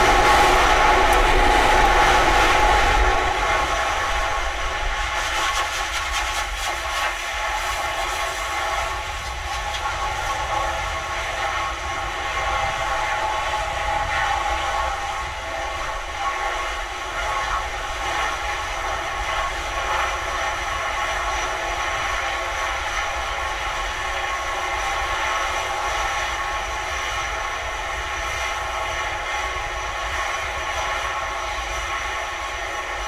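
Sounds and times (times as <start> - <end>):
low rumble: 0.0 - 5.4.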